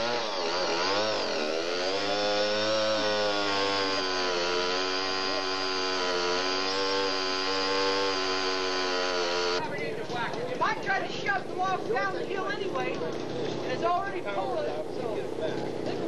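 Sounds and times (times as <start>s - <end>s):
chainsaw engine running: 0.0s - 9.6s.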